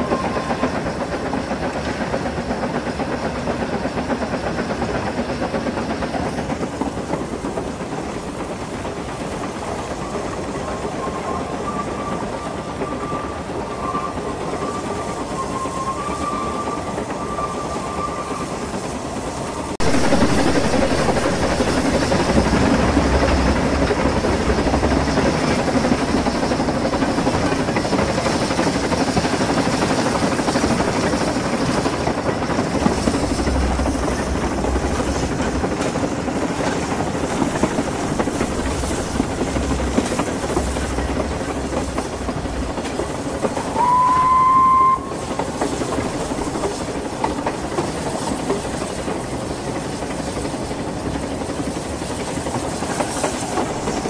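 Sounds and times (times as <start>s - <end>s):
wheels rumbling on rail: 0.0s - 54.0s
wheel squeal: 10.6s - 35.6s, 37.6s - 45.8s
heavy low rumble: 19.8s - 27.4s, 32.0s - 43.6s.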